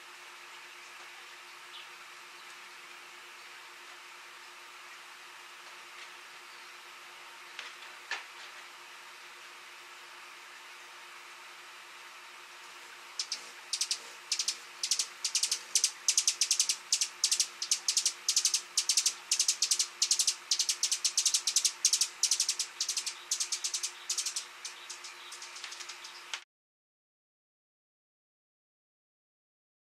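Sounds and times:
hummingbird chip notes: 13.1s - 26.4s.

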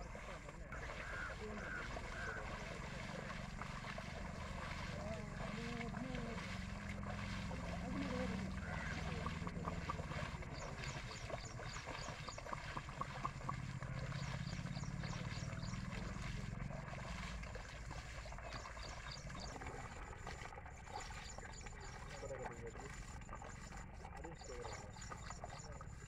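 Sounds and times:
low engine hum: 0.0s - 26.0s
water sloshing and splashing: 0.0s - 26.0s.

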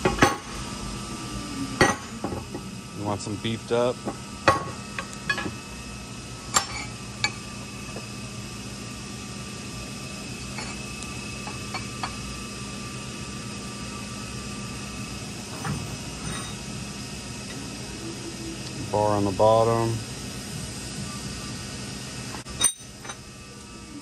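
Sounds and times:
steady shop hum: 0.0s - 24.0s
metal parts clinking: 22.5s - 23.2s.

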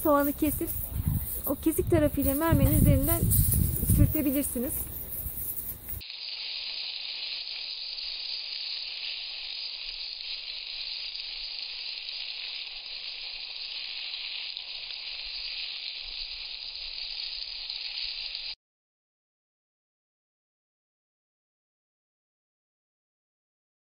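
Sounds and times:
meat sizzling on hot stone: 0.0s - 18.6s.

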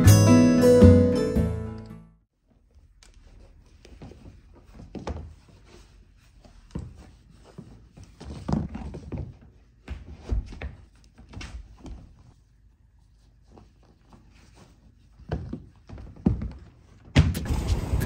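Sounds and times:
laces and clothing rustling: 2.4s - 17.1s
shoes thudding on wooden floor: 15.2s - 17.4s.

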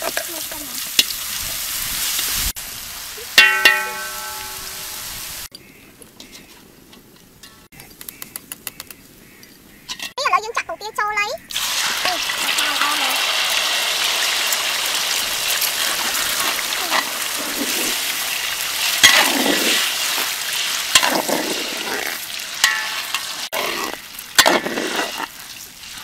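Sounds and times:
egg sizzling in wok: 0.0s - 5.5s, 11.5s - 26.0s
metal spatula scraping wok: 15.7s - 25.4s.

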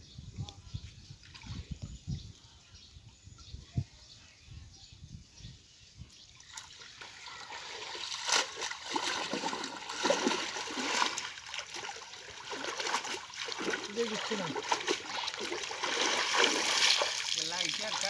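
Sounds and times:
pond water splashing: 6.4s - 18.0s.

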